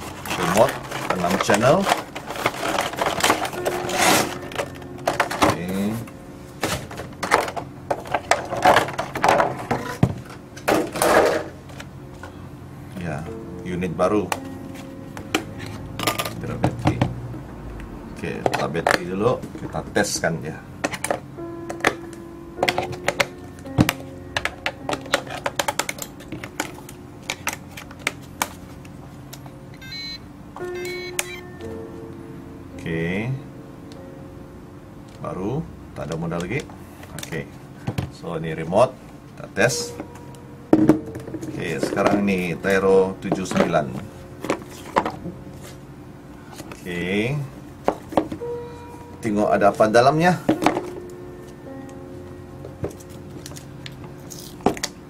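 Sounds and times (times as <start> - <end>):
paper and plastic packaging rustling: 0.0 - 12.4, 22.0 - 29.4, 41.2 - 47.0, 52.7 - 55.0
electronic beeps: 29.7 - 31.5.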